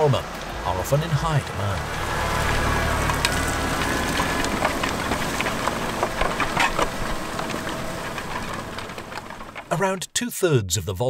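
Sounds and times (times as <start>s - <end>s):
farm machine drone: 0.0s - 11.0s
soil clicking against implement: 1.4s - 10.1s.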